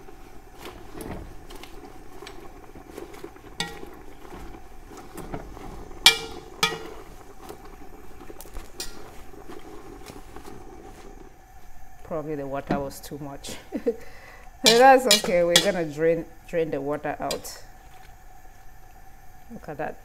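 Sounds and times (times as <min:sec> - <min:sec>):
spoon scraping in metal pot: 0:00.6 - 0:11.2, 0:14.6 - 0:16.0
spoon clinking against pot: 0:06.0 - 0:07.0, 0:14.7 - 0:15.8.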